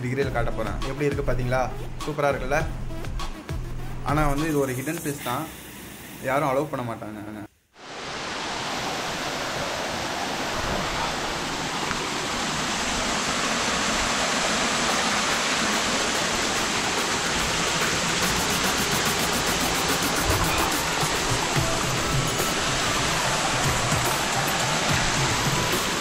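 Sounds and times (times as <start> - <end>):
water rushing over rocks: 7.8 - 26.0.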